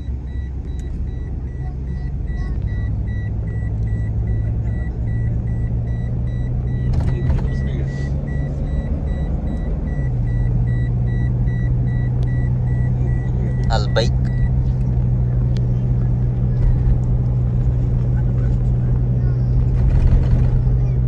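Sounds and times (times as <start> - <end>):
faint high beep: 0.0 - 14.6
car engine and road rumble: 0.0 - 21.0.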